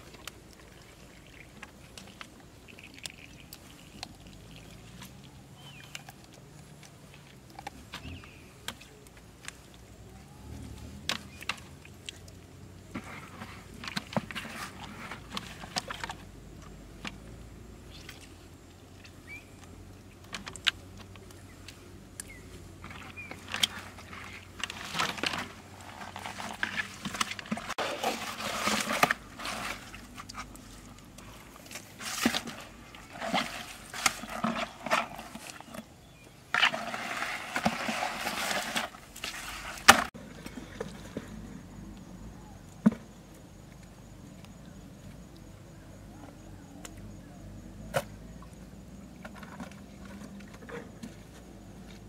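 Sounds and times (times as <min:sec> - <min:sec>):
water splashing in plastic bucket: 0:22.8 - 0:35.8, 0:36.5 - 0:41.2.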